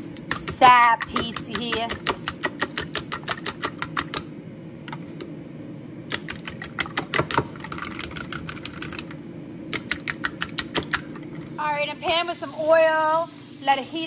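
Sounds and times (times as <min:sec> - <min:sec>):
chopsticks beating eggs in bowl: 0:00.2 - 0:04.2.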